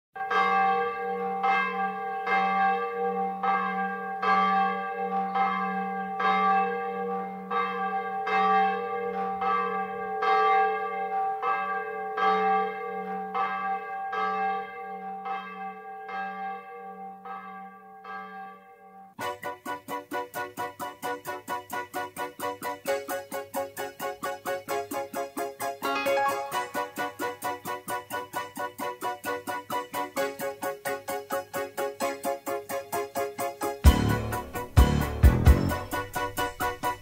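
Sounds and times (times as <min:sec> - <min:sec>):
bells ringing: 0:00.2 - 0:17.1, 0:22.6 - 0:30.5.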